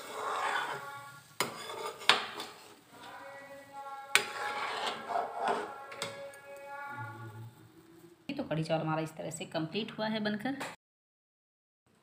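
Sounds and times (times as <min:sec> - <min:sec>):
ladle swishing thick liquid: 0:00.0 - 0:02.8.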